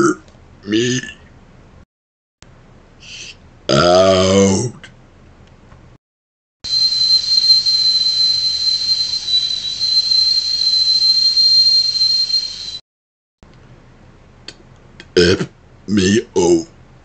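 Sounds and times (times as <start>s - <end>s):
man whistling high-pitched: 6.6s - 12.8s.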